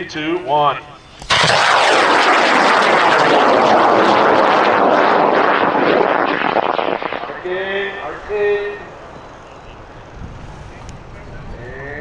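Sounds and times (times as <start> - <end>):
rocket motor roaring: 1.0 - 9.2.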